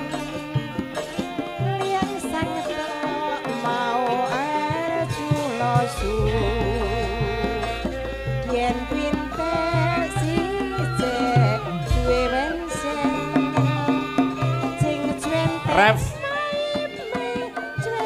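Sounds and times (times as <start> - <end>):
hand drum strokes: 0.0 - 18.0
woman singing solo: 1.6 - 18.0
deep sustained low tone: 11.7 - 12.8.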